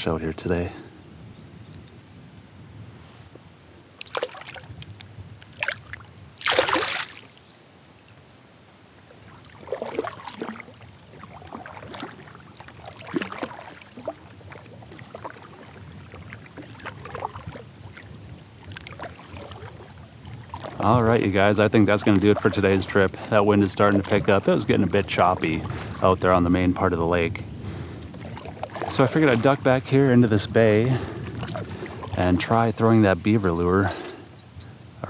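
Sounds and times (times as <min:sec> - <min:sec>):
water splash: 0:04.0 - 0:07.4, 0:09.2 - 0:26.4, 0:28.1 - 0:32.8
kayak paddle strokes in water: 0:09.0 - 0:33.8.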